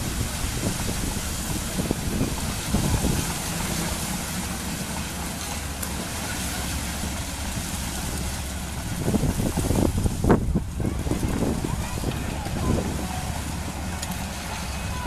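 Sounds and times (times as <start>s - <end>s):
wind hiss on microphone: 0.0s - 4.3s, 8.0s - 14.3s
tractor diesel engine running: 0.0s - 15.0s.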